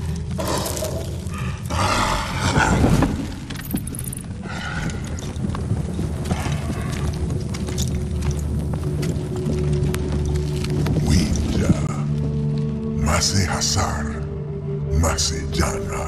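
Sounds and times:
animal growls and roars: 0.0 - 3.7.

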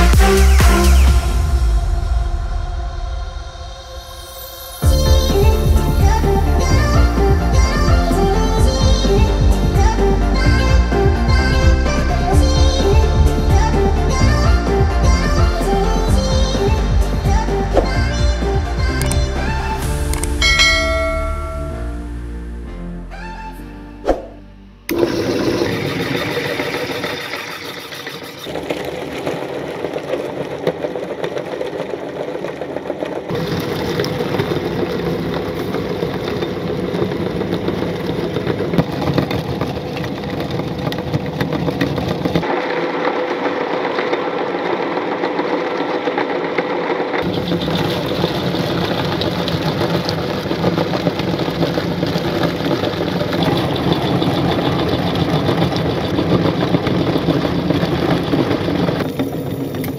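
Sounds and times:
electric meat grinder running: 24.9 - 59.9.

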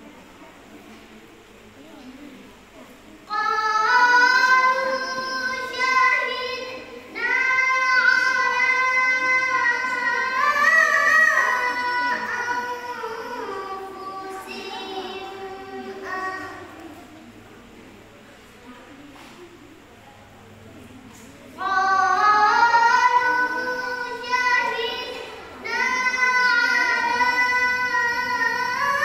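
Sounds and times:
girl chanting melodically: 3.3 - 16.9, 21.6 - 29.0.

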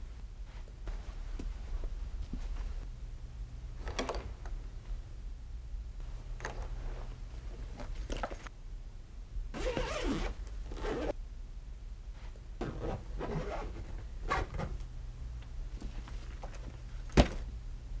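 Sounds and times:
suitcase zipper rasping: 9.6 - 11.1, 12.7 - 14.6.

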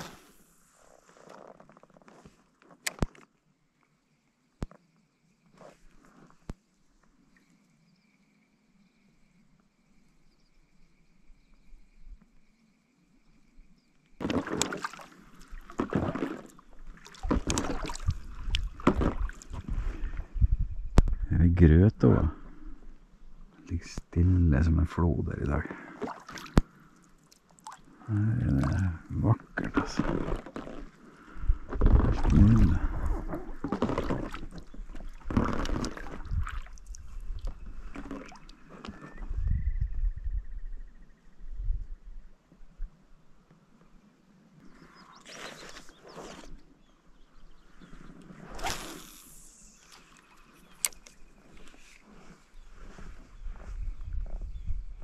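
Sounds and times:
paddle splashing in water: 14.2 - 20.2, 25.8 - 27.9, 31.6 - 39.1.

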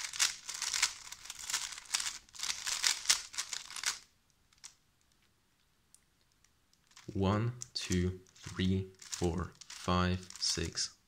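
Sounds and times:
speed cube clicking and rattling: 0.0 - 4.8, 8.4 - 10.4.

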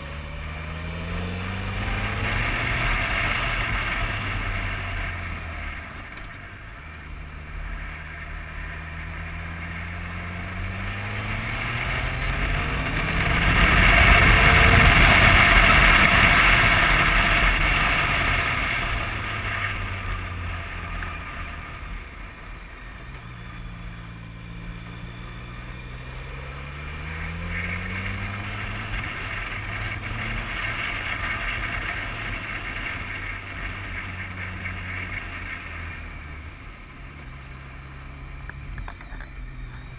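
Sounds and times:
motorcycle engine accelerating: 0.0 - 39.9
loud wind noise: 10.7 - 20.6.

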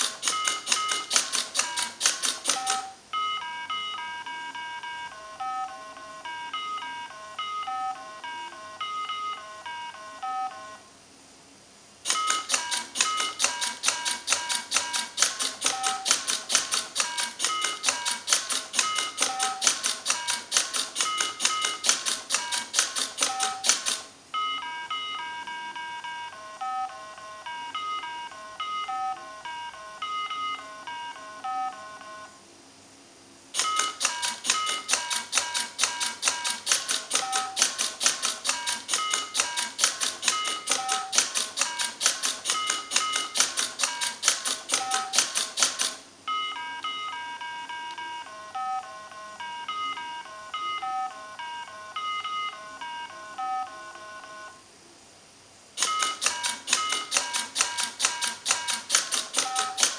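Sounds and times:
rapid mechanical clicking: 0.0 - 3.0, 12.0 - 24.1, 33.5 - 46.0, 55.8 - 59.9
electronic game button beeps: 0.0 - 10.7, 12.1 - 31.8, 33.6 - 53.7, 55.8 - 59.9.

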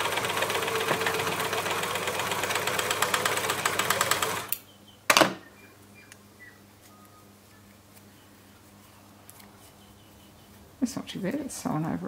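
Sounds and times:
overlocker sewing machine running: 0.0 - 4.6.

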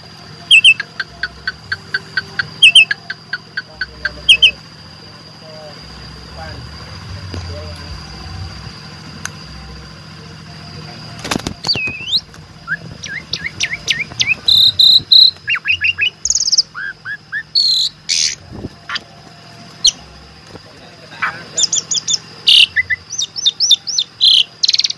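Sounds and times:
starling singing: 0.0 - 9.7, 10.4 - 24.9
sharp click: 11.2 - 12.4.

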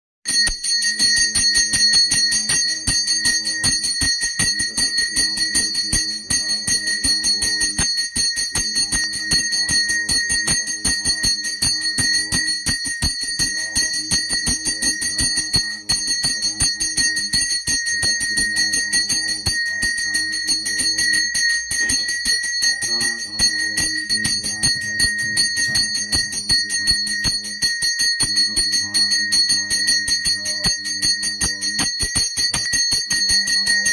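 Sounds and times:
temple bell ringing rapidly: 0.3 - 33.9.

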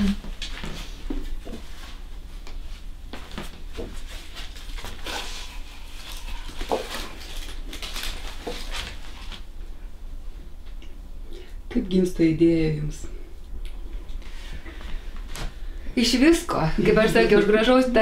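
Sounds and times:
paper sheets rustling and sliding: 6.0 - 9.5.

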